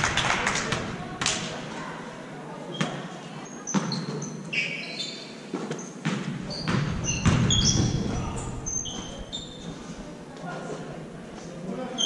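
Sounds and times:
sneaker squeaks: 0:02.7 - 0:09.9
basketball bouncing on hardwood: 0:06.0 - 0:08.1.

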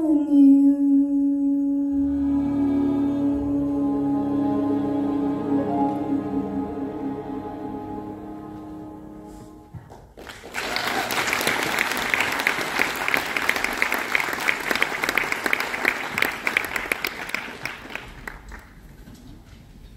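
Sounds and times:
audience applauding: 0:09.9 - 0:18.9.

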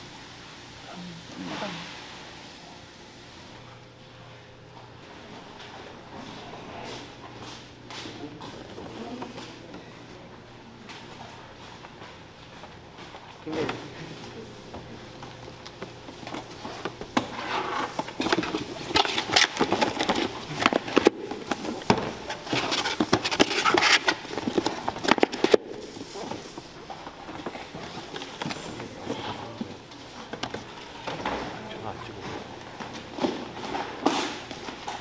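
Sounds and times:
cardboard boxes crackling and scraping: 0:16.0 - 0:31.2.

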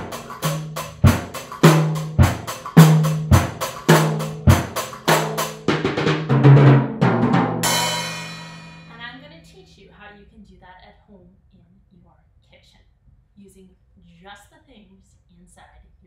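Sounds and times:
drum kit rock groove: 0:00.0 - 0:09.0
cymbal crash ringing: 0:07.6 - 0:09.2.

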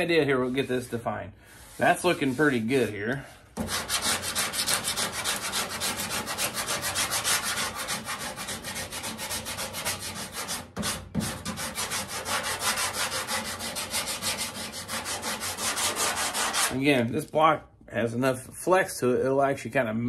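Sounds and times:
sandpaper rubbing back and forth: 0:03.6 - 0:16.8.

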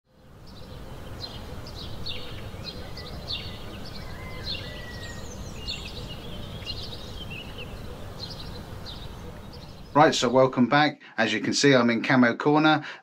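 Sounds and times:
small birds chirping: 0:00.1 - 0:10.6
low outdoor rumble: 0:00.2 - 0:10.5.

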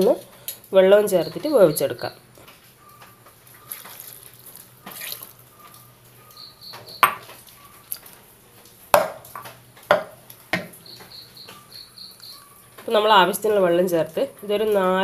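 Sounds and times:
faint high chirping: 0:02.8 - 0:08.0, 0:10.7 - 0:12.8
dishes knocking and clinking: 0:07.0 - 0:07.3, 0:09.0 - 0:10.8.

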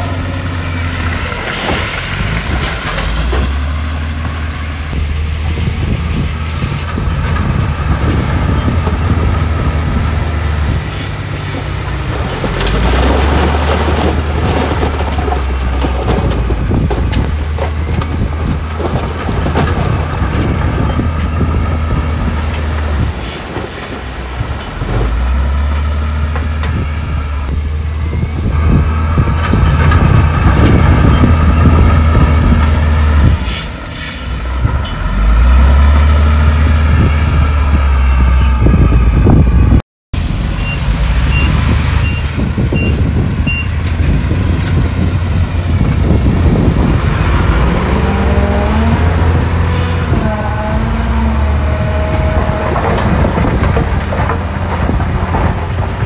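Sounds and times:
heavy diesel machinery engine: 0:00.0 - 0:56.0
rattling clatter: 0:51.7 - 0:56.0.

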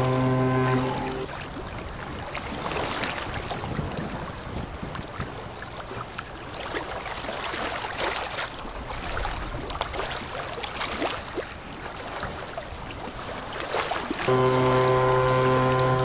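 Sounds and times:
low rumble of passing ship: 0:00.0 - 0:16.0
water noise: 0:00.0 - 0:16.0
wind: 0:00.0 - 0:16.0.

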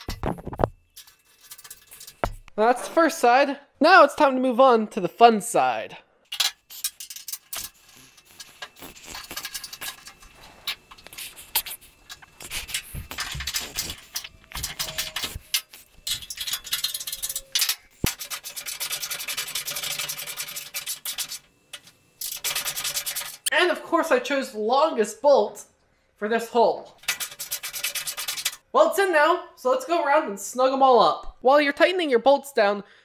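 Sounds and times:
metal scraping and clicking: 0:00.0 - 0:02.6, 0:06.3 - 0:23.5, 0:27.0 - 0:28.6
hand ratchet clicking rapidly: 0:11.6 - 0:23.5, 0:27.0 - 0:28.6.

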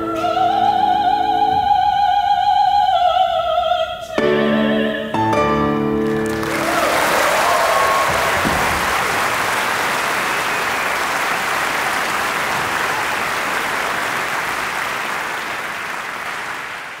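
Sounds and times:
audience applauding: 0:06.0 - 0:17.0.

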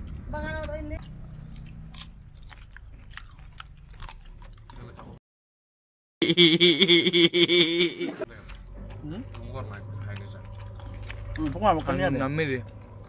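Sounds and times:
man chewing crunchy fruit: 0:01.0 - 0:05.2, 0:08.1 - 0:13.0.

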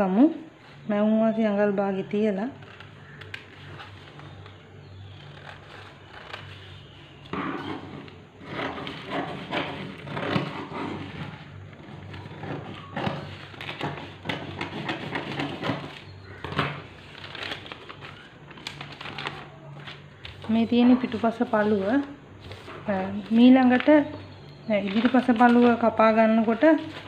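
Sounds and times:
paper crinkling and rustling: 0:02.6 - 0:27.0.

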